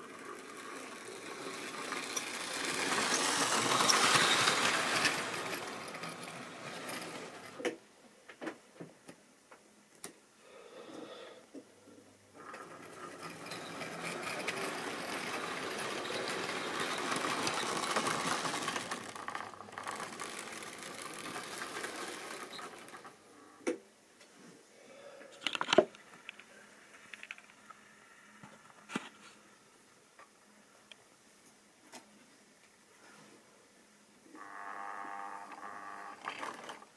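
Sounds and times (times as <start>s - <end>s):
model train motor whirring: 0.0s - 7.7s, 12.4s - 23.3s, 34.4s - 36.9s
wheels rattling over rails: 0.0s - 7.8s, 12.4s - 23.5s, 36.0s - 36.9s.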